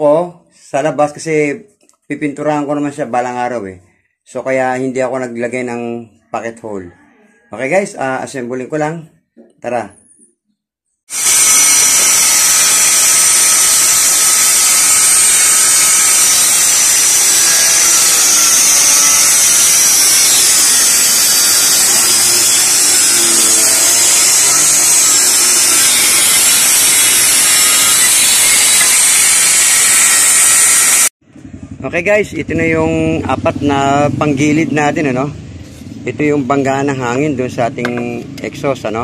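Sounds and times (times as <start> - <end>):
high hiss: 11.1 - 31.1
power tool whirring: 11.1 - 31.2.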